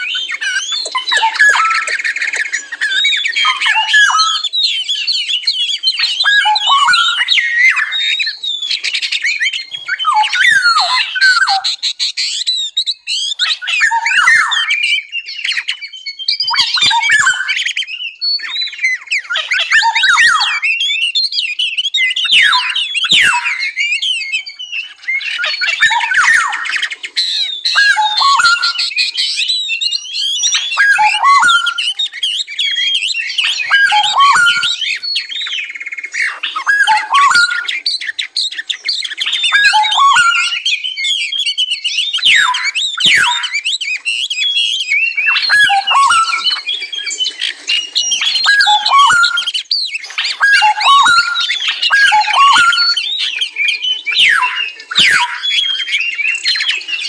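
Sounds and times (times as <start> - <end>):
songbirds singing and calling: 0.0 - 57.0.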